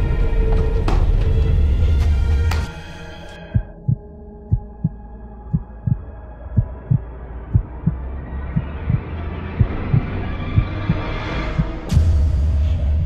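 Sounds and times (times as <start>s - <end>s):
steady low drone: 0.0s - 13.0s
heartbeat thumps: 3.5s - 8.0s, 8.6s - 9.0s, 9.6s - 11.9s.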